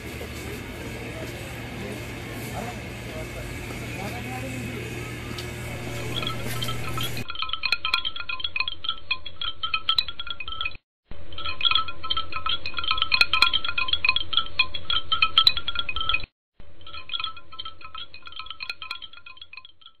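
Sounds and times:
tinkling chimes music: 5.7 - 9.2, 11.4 - 16.2, 16.9 - 20.0.

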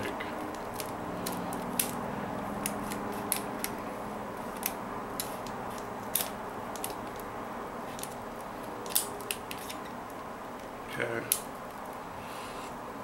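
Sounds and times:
faint room hum: 0.0 - 13.0.

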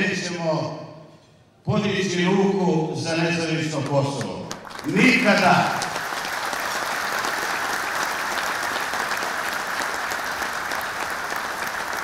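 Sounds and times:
crowd applauding: 4.4 - 12.0.

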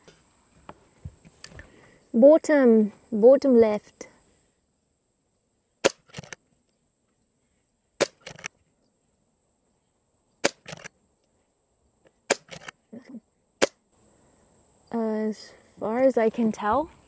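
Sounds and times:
air rifle shots: 5.8 - 6.4, 8.0 - 8.5, 10.4 - 10.9, 12.3 - 12.7
quiet clicks after shots: 8.0 - 8.6.

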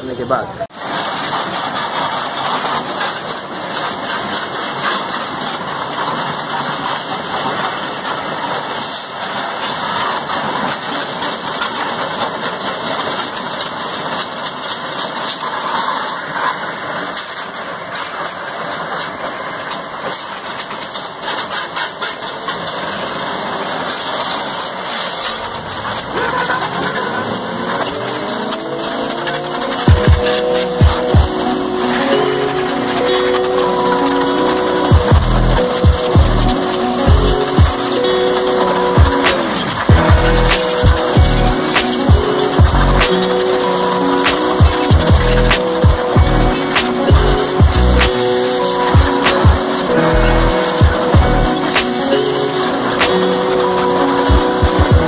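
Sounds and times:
high-pressure water jet hissing: 0.1 - 55.0
pump motor hum: 16.7 - 55.0.

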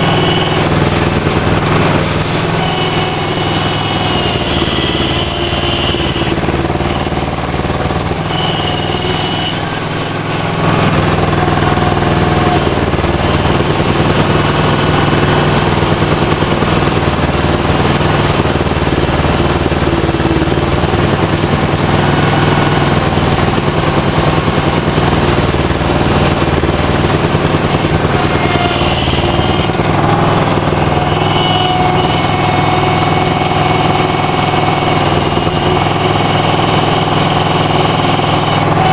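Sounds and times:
boat engine running: 0.0 - 38.9.

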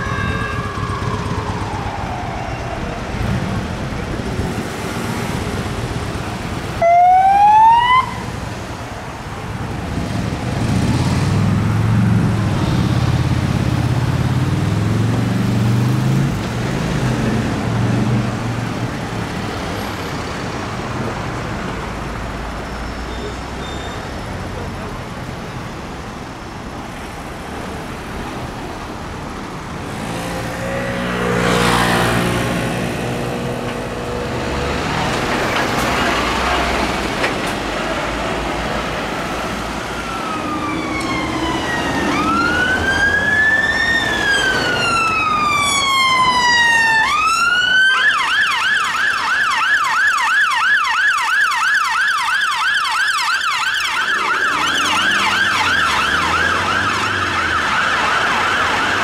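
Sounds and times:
fast yelp siren: 0.0 - 3.0, 6.8 - 8.3, 39.9 - 59.0
wailing siren: 0.0 - 3.7, 6.8 - 8.4, 39.5 - 59.0
road traffic passing: 0.0 - 59.0.

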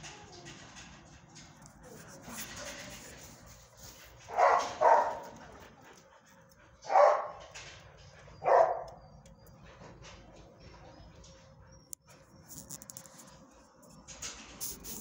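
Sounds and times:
dog barking: 4.3 - 5.4, 6.8 - 7.5, 8.4 - 9.0.

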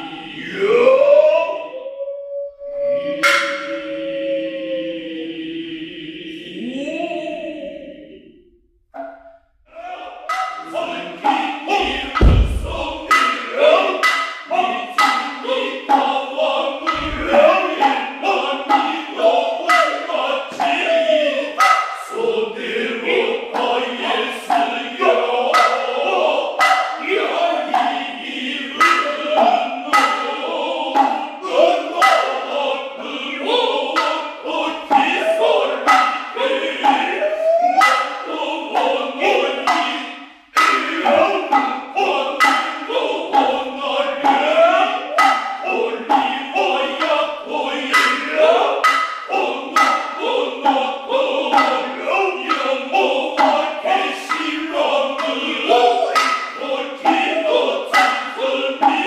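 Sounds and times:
chorus chanting in unison: 0.0 - 59.0
hand drum strikes: 11.8 - 13.2.

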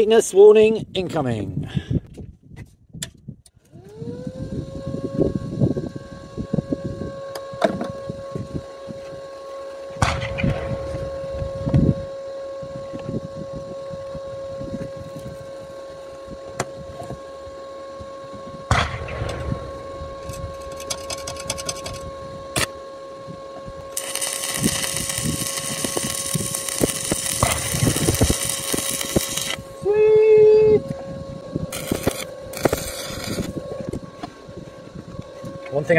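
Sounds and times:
faint steady hum: 4.5 - 35.9
welding arc crackling hiss: 23.9 - 30.7, 31.7 - 33.6.

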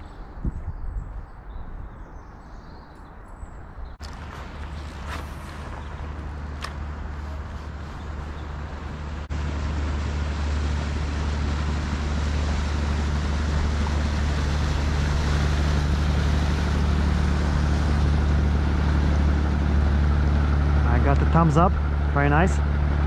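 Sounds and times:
boat engine droning: 4.0 - 23.0
rushing water and air: 4.0 - 23.0.

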